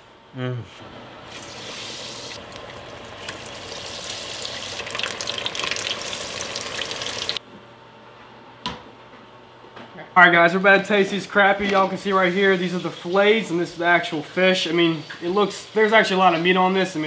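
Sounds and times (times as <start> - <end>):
fish sizzling in hot oil: 1.3 - 7.4.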